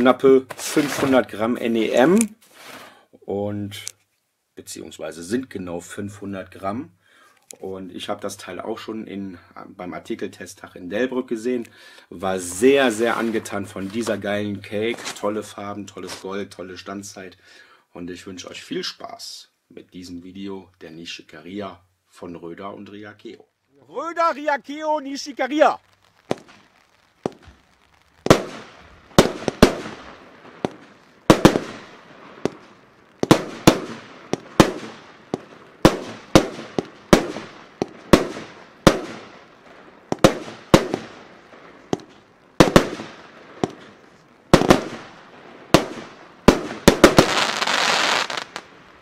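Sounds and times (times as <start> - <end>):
dense crackling hiss: 0.0 - 49.0
firework shots with hiss: 0.5 - 1.3, 26.2 - 48.7.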